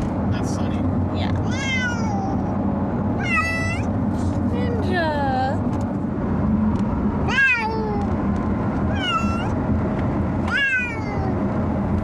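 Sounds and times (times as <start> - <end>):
cats meowing: 1.4 - 2.5, 3.2 - 3.8, 8.9 - 9.5, 10.5 - 11.4.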